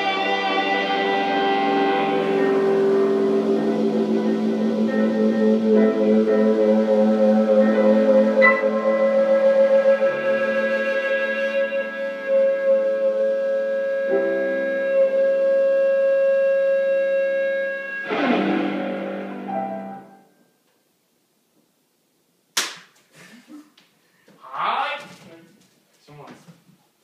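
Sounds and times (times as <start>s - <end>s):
electric guitar chords: 0.0s - 20.4s
piano chords: 0.0s - 20.5s.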